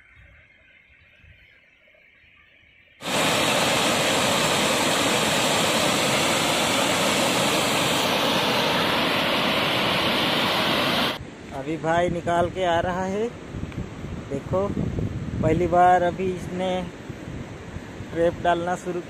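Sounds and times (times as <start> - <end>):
water rushing over weir: 3.0 - 11.2.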